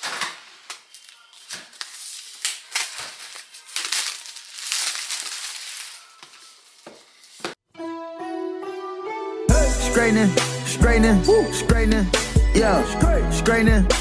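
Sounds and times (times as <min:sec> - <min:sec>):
plastic wrapping crinkling: 0:00.0 - 0:07.5.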